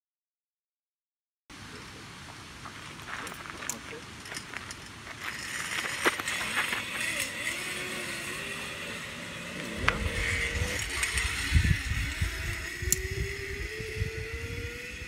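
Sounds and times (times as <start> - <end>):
zipline pulleys whirring on cable: 3.7 - 15.0
wind buffeting microphone: 5.8 - 15.0.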